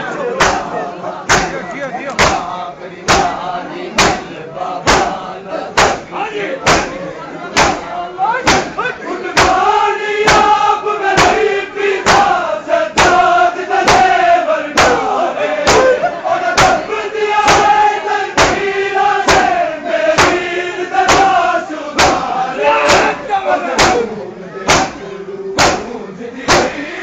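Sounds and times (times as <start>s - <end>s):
men chanting a lament: 0.0s - 27.0s
hands striking chests: 24.7s - 25.0s.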